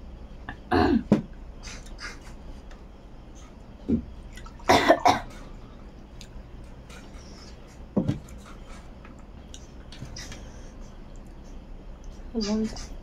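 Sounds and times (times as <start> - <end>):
woman coughing: 4.7 - 5.3
wet clicks of eating: 6.0 - 7.2, 9.0 - 10.5, 11.1 - 12.2.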